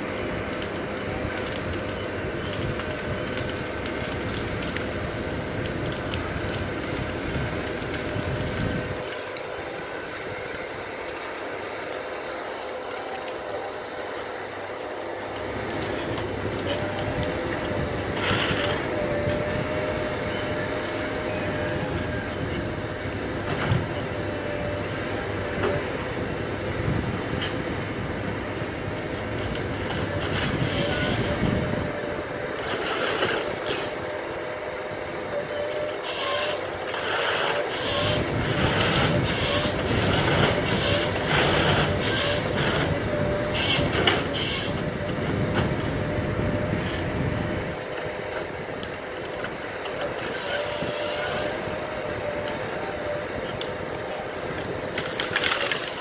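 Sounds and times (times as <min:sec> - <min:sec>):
harvester engine and hydraulics: 0:00.0 - 0:56.0
high machine whine: 0:00.0 - 0:56.0
harvester head cutting logs: 0:29.7 - 0:34.0, 0:35.7 - 0:47.2.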